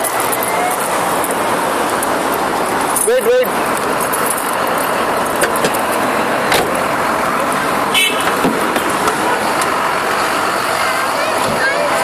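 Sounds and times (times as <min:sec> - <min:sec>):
road traffic noise: 0:00.0 - 0:12.0.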